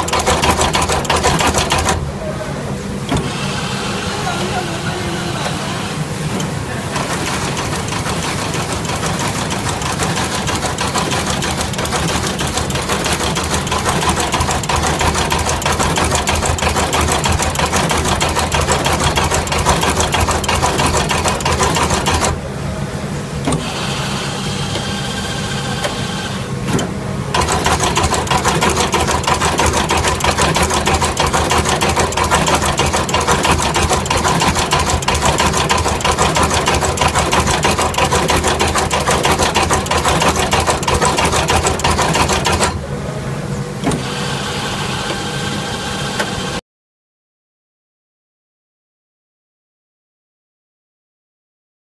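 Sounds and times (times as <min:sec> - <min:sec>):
machine mechanical clatter: 0:00.0 - 0:02.1, 0:06.3 - 0:22.4, 0:26.7 - 0:42.8.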